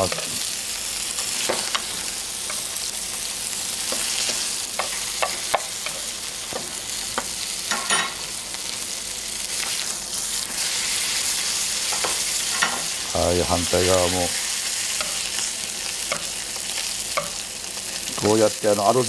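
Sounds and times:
steak sizzling in a frying pan: 0:00.0 - 0:19.0
metal spoon tapping a pan: 0:03.9 - 0:08.1, 0:15.0 - 0:15.3, 0:17.1 - 0:17.4.

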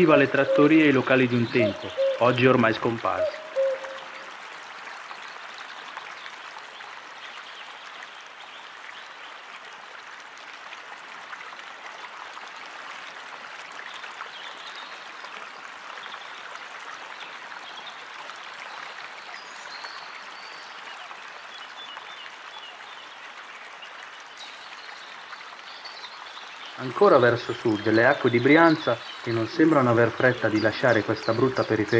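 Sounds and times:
flowing water rushing: 0:00.0 - 0:31.9.

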